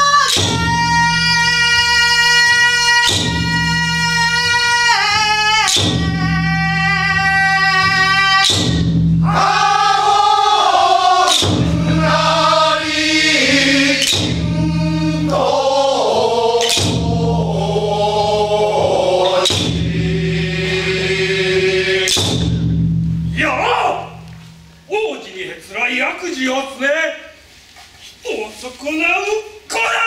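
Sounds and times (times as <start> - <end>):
sharp beat stroke: 8.4 - 15.4
men's chorus singing: 9.2 - 22.7
steady low tone: 11.4 - 15.4, 16.8 - 24.9.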